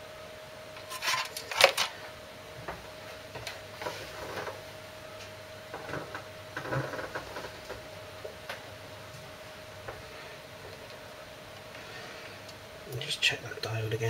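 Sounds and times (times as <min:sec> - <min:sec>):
faint steady whine: 0:00.0 - 0:14.0.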